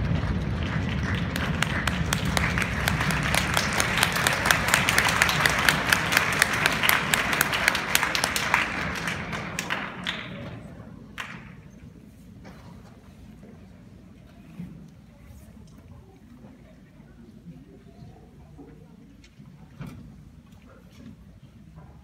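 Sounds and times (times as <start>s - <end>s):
loud single claps: 0.0s - 10.6s
audience applauding: 0.0s - 11.8s.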